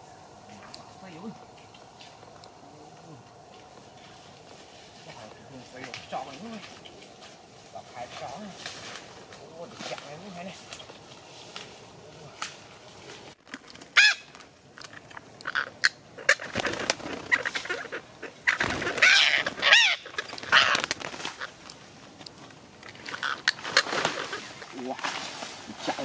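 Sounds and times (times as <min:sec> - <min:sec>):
parakeets squawking: 0:13.9 - 0:21.8, 0:22.8 - 0:24.9.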